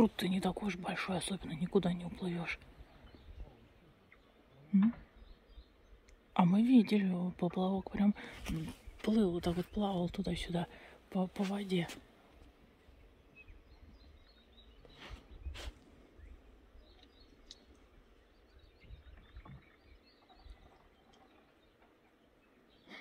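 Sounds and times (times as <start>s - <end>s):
faint bird chirps: 12.8s - 23.0s.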